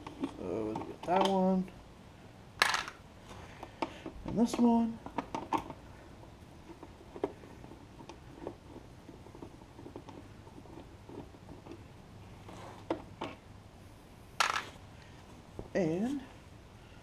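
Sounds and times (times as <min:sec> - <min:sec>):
small clicks and scrapes: 0:00.0 - 0:01.4, 0:02.6 - 0:13.4.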